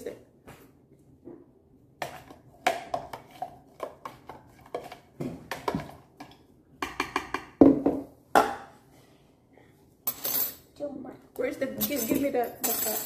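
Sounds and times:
spoon stirring in plastic pitcher: 2.0 - 7.6.

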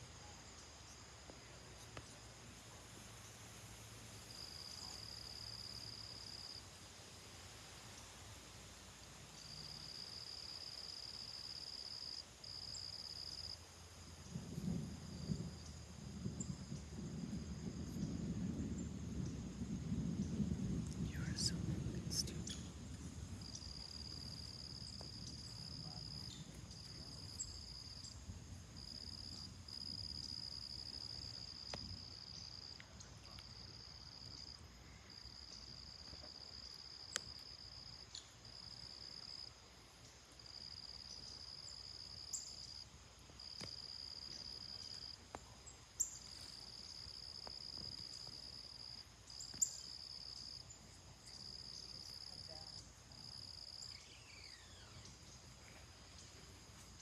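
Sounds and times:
distant thunder rumbling: 14.1 - 32.2.

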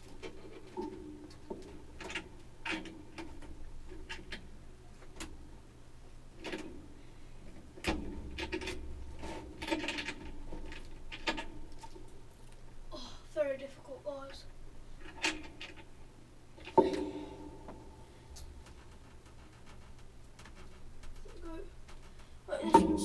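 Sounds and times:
sharp knocks: 16.7 - 18.9
low rumble: 16.8 - 18.9.

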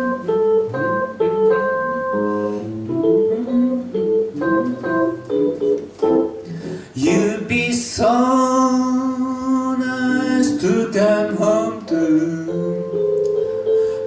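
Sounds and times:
electronic keyboard chords: 0.0 - 7.5, 10.2 - 14.0
electric guitar: 0.0 - 7.9.

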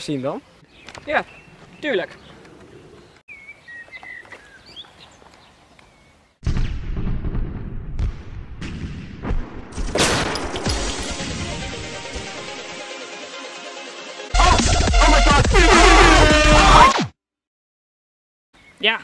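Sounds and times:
faint bird chirps: 0.4 - 6.4
pistol gunshots: 8.6 - 11.3.

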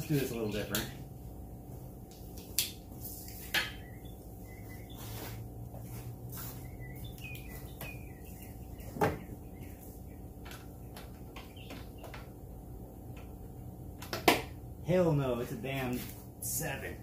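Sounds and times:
faint high chirps: 3.2 - 5.4.

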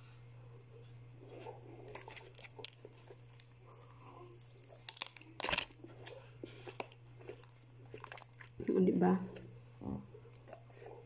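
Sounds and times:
wet mouth chewing: 1.3 - 8.6, 10.2 - 11.0
crispy chicken coating crackling: 1.9 - 8.6.

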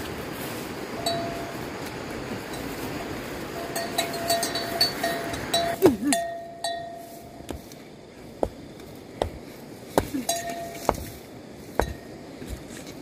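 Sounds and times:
metallic clinks and knocks: 10.2 - 11.1.

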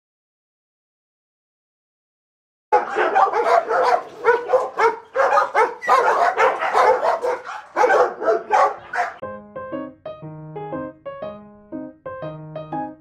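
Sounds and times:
dog barking rapidly: 2.7 - 9.2
piano music: 2.8 - 13.0.

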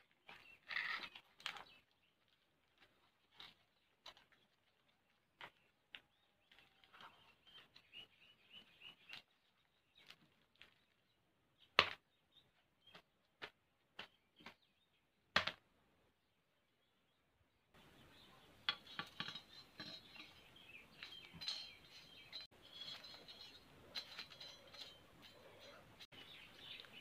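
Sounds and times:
banana leaves rustling and crackling: 0.0 - 7.6.

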